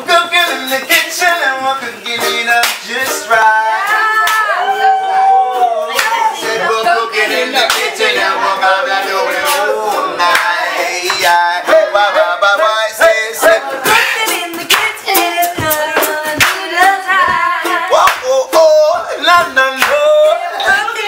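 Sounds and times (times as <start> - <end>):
people singing: 0.0 - 21.0
strummed stringed instrument: 0.0 - 21.0
hand clapping: 2.6 - 3.1, 4.2 - 4.6, 5.9 - 6.3, 7.6 - 8.0, 10.3 - 11.4, 13.8 - 20.9.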